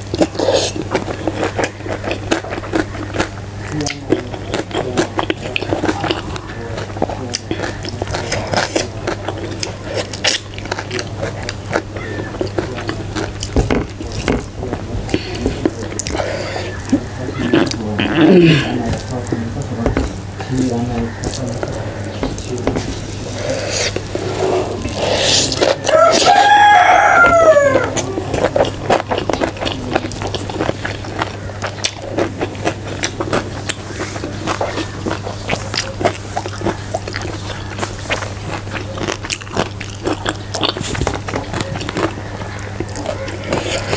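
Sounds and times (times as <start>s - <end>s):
open-mouthed chewing and lip-smacking: 0.0s - 43.9s
rooster crowing: 25.8s - 28.7s, 42.0s - 43.9s.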